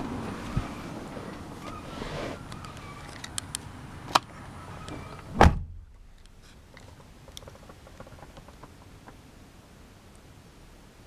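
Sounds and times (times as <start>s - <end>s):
car door clicks: 4.9s - 5.8s
car door thudding shut: 5.3s - 5.8s.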